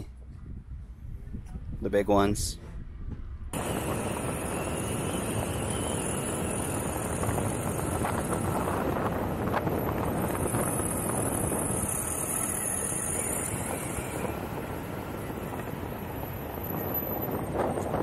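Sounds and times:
wind on microphone: 0:00.0 - 0:18.0
skateboard wheels rolling on asphalt: 0:03.2 - 0:18.0.

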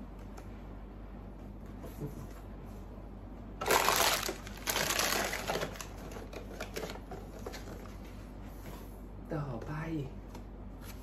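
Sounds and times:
plastic packaging crinkling: 0:03.6 - 0:07.8.

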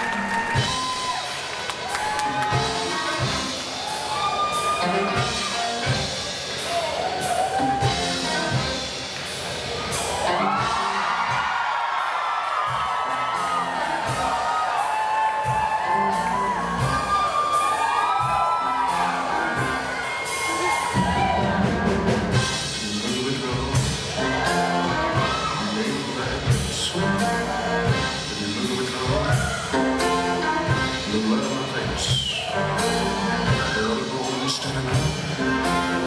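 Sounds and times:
audience cheering and whooping: 0:00.0 - 0:09.0, 0:09.7 - 0:22.4, 0:24.0 - 0:26.6, 0:29.0 - 0:30.7
bass guitar: 0:00.0 - 0:36.0
live rock band playing: 0:00.0 - 0:36.0
steady drum beat: 0:00.0 - 0:36.0.

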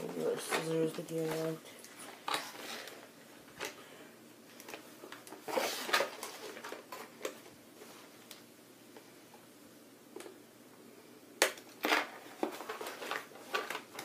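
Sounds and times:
toy packaging clicks and rustles: 0:00.2 - 0:03.8, 0:04.5 - 0:07.5, 0:11.7 - 0:14.0.

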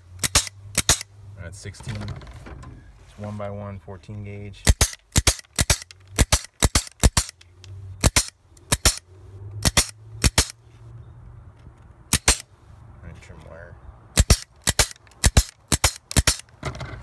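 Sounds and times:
pneumatic wire cutters snapping: 0:00.0 - 0:01.1, 0:04.6 - 0:10.6, 0:12.1 - 0:12.5, 0:14.2 - 0:16.6.

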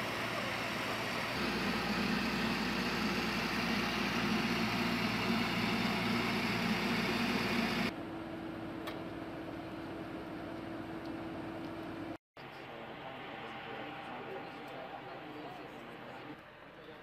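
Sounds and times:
steady hum: 0:00.0 - 0:08.8
tracked vehicle engine idling: 0:00.0 - 0:12.2.

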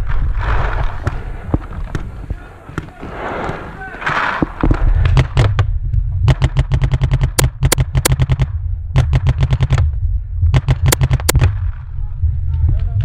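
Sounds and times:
low rumble: 0:00.0 - 0:02.6, 0:04.4 - 0:13.0
paintball markers firing: 0:06.3 - 0:09.9, 0:10.5 - 0:11.6.

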